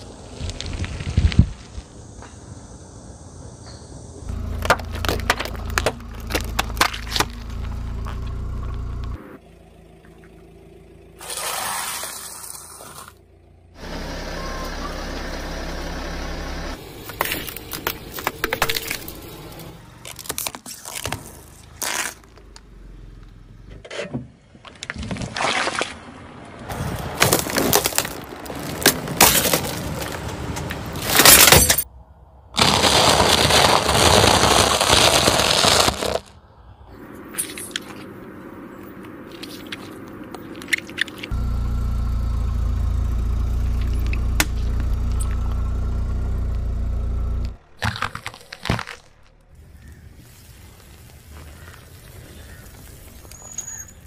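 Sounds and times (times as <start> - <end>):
tyre crushing cans: 4.4 - 7.6, 47.8 - 49.3.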